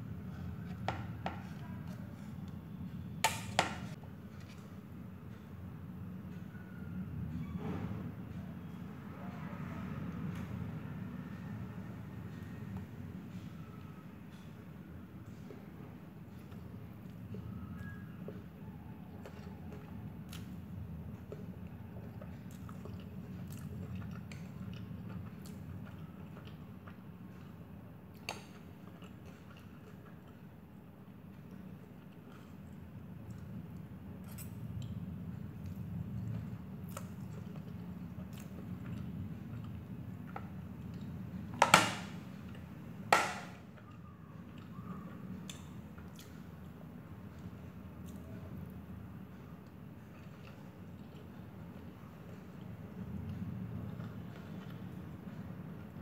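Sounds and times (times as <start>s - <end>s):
person chewing noodles: 13.5s - 41.5s, 43.7s - 56.0s.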